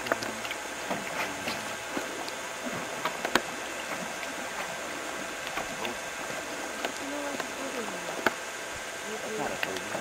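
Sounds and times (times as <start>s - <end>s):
lake water lapping at shore: 0.0s - 10.0s.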